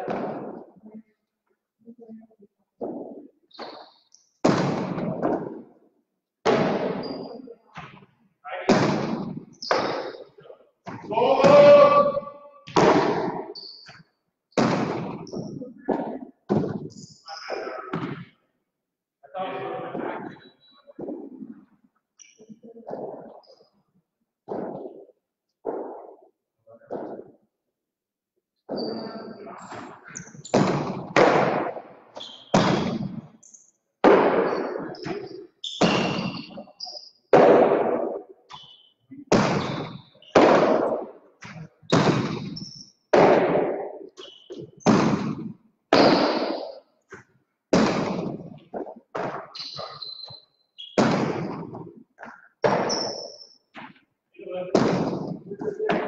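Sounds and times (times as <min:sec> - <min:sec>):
balls cracking against walls: 0:00.0 - 0:00.8, 0:02.8 - 0:18.4, 0:19.9 - 0:23.8, 0:24.4 - 0:27.5, 0:28.6 - 0:56.0
hard ball striking wall: 0:10.8 - 0:13.5, 0:39.3 - 0:43.9.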